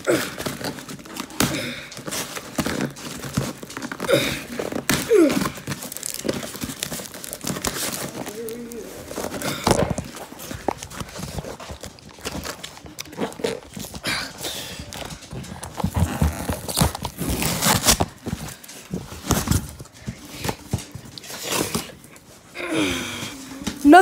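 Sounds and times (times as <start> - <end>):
cardboard box rustling and scraping: 14.9 - 22.0.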